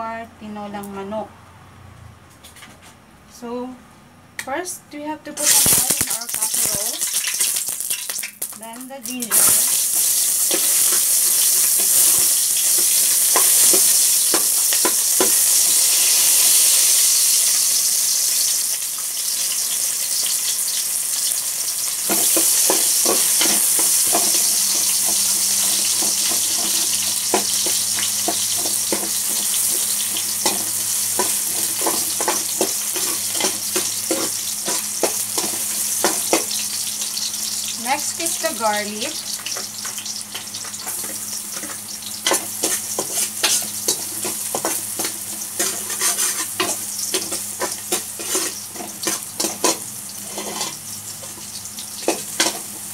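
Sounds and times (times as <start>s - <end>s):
ginger sizzling in hot oil: 5.4s - 52.9s
spoon scraping and tapping pot: 39.5s - 51.4s.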